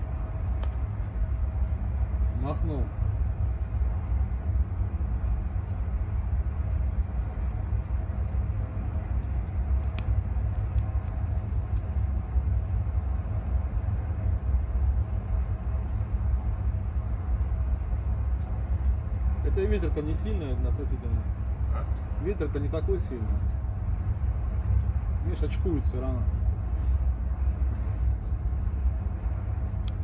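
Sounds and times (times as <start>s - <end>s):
faint steady hum: 0.0s - 30.0s
helicopter rumble: 0.0s - 30.0s
faint clicks: 5.2s - 5.9s, 15.8s - 16.1s, 29.2s - 30.0s.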